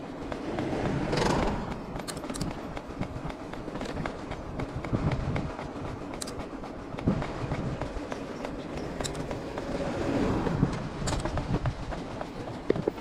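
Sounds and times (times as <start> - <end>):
bike clicks and rattles: 0.3 - 5.5, 6.1 - 9.8, 10.7 - 11.7
wind on microphone: 4.4 - 5.9, 8.9 - 13.0.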